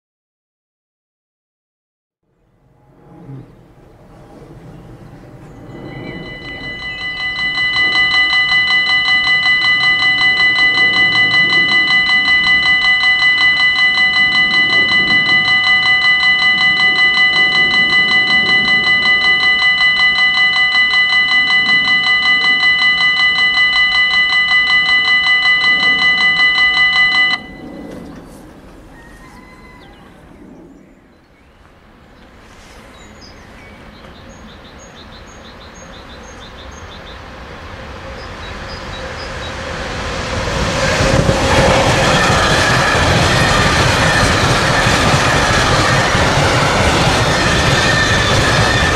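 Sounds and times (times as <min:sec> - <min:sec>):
level crossing warning bell: 0:05.4 - 0:30.1, 0:38.2 - 0:48.9.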